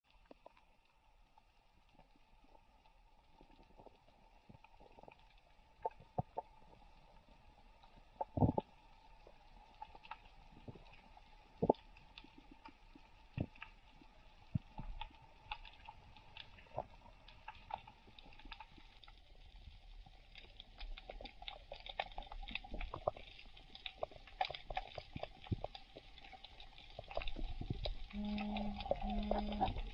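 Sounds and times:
underwater clicks and crackles: 0:00.0 - 0:29.9
faint low rumble: 0:27.1 - 0:29.9.

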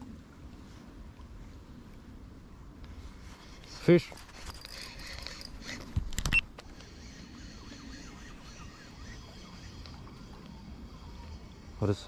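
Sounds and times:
fishing rod and reel handling: 0:03.2 - 0:07.3.

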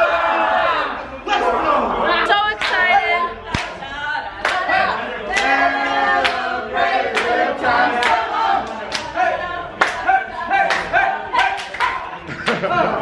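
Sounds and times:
group of people singing: 0:00.0 - 0:13.0
hand claps: 0:03.5 - 0:03.8, 0:06.2 - 0:06.4, 0:10.6 - 0:12.6.

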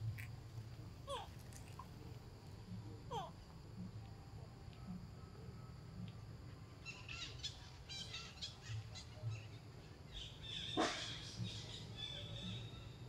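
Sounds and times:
small birds chirping: 0:06.7 - 0:13.0.

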